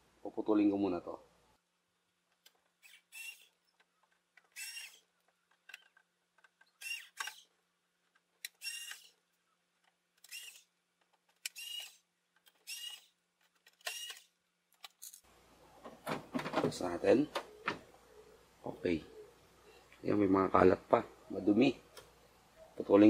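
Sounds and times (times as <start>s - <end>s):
screwdriver squeaking screws: 2.8s - 6.0s, 6.6s - 7.4s, 8.4s - 9.2s, 10.2s - 10.7s, 11.4s - 14.3s.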